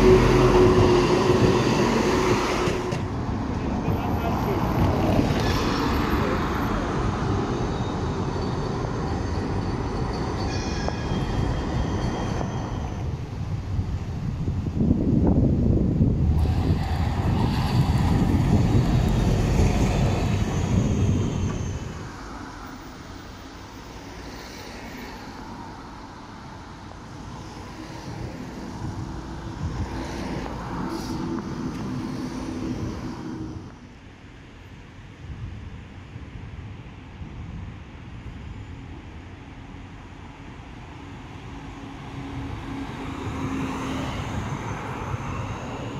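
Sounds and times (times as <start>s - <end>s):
cars driving by: 0.0s - 13.2s, 16.2s - 34.1s, 41.1s - 45.9s
tram wheels rumbling on rails: 0.0s - 35.0s, 37.9s - 45.9s.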